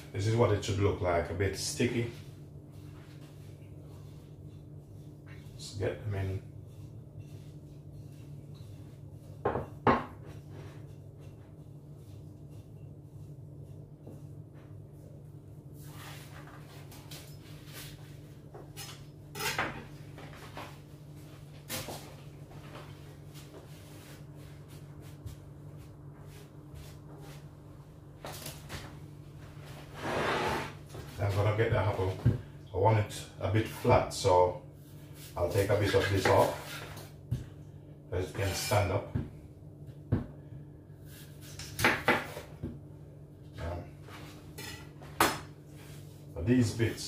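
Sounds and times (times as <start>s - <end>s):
low steady hum: 0.0s - 47.0s.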